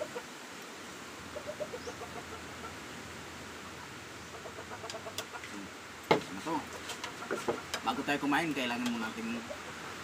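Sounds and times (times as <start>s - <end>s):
chicken clucking: 1.3s - 2.8s, 3.6s - 5.7s, 6.8s - 7.9s.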